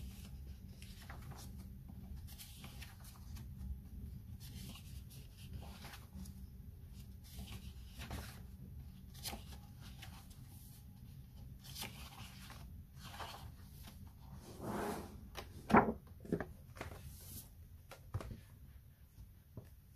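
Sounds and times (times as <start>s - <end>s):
paper pages turning: 0.0s - 3.7s, 11.4s - 14.1s, 15.3s - 18.4s.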